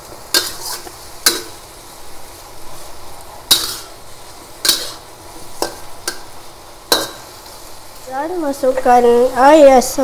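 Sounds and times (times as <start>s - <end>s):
eggplant sizzling in hot oil: 0.0s - 10.0s
metal spatula scraping a wok: 0.2s - 1.7s, 2.6s - 7.8s.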